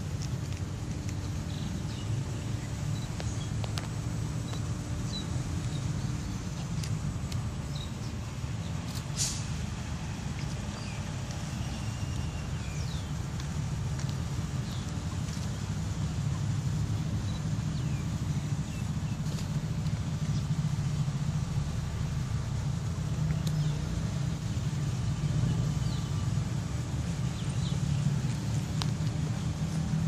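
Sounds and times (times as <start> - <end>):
brief hiss: 9.0 - 9.6.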